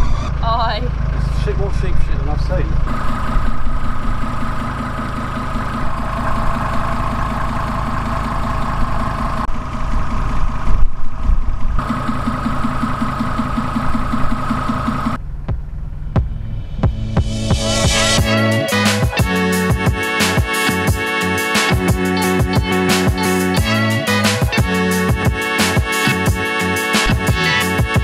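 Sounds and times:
steady whine: 0.0s - 28.0s
van engine idling: 0.0s - 28.0s.

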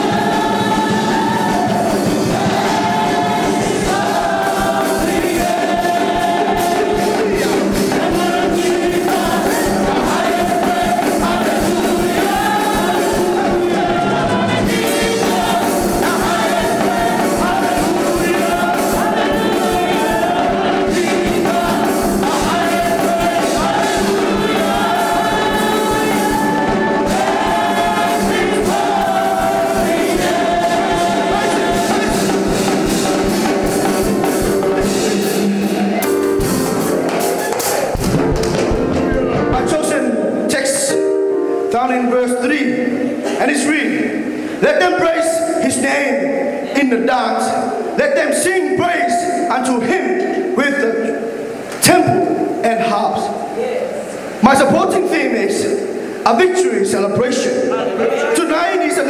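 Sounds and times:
drums beating: 0.0s - 40.2s
live band: 0.0s - 41.9s
choir singing gospel: 0.0s - 59.0s.

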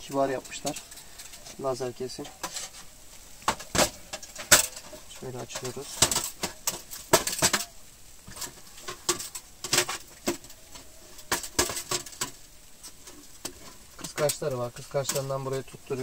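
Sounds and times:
metal stove panels clinking: 0.0s - 2.8s, 3.5s - 7.7s.

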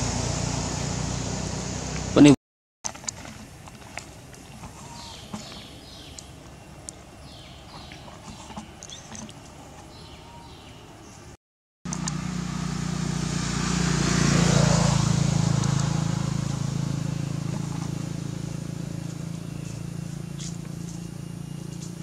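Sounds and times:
road hiss: 0.0s - 2.4s
vehicle engine passing by: 0.0s - 2.4s, 11.9s - 22.0s.

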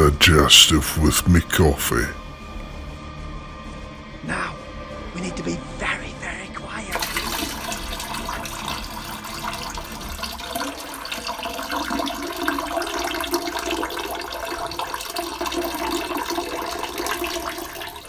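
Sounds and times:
stream of urine splashing: 6.9s - 18.0s.

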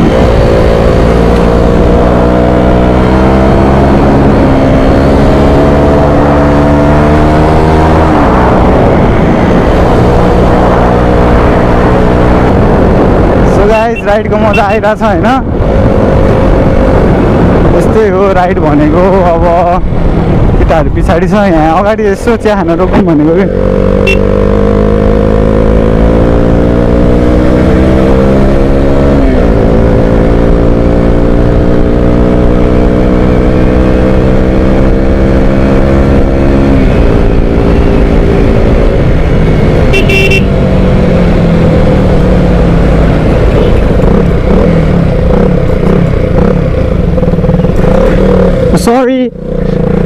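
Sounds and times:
motorcycle engine accelerating: 0.0s - 50.0s
short horn toot: 24.0s - 24.3s, 39.9s - 40.5s.

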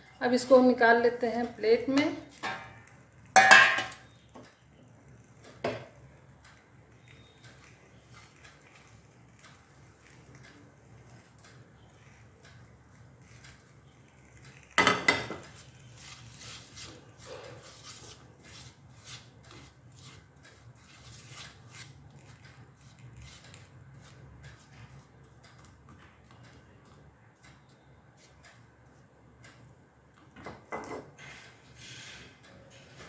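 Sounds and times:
frying pan clattering on stove: 2.4s - 4.0s, 14.8s - 15.4s.

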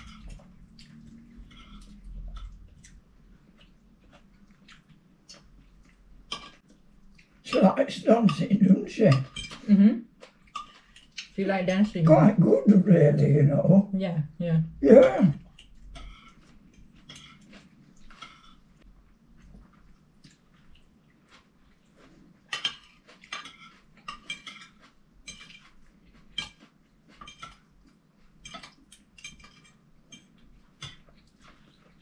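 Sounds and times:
cutlery clinking on plates: 6.3s - 6.7s, 7.5s - 9.7s, 10.4s - 11.1s, 15.9s - 18.7s, 22.5s - 32.0s.

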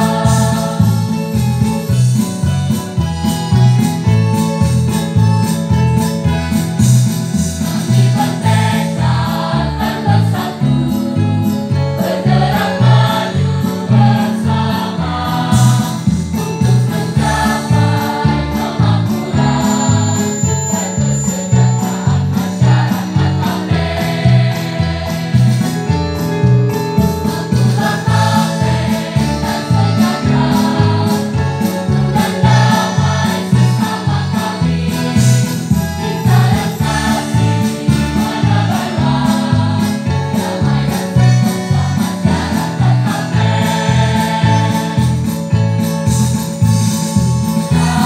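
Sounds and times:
choir singing a march: 0.0s - 1.4s, 7.6s - 11.1s, 12.0s - 25.8s, 27.2s - 45.4s, 47.7s - 48.0s
electronic keyboard bass beat: 11.4s - 48.0s.

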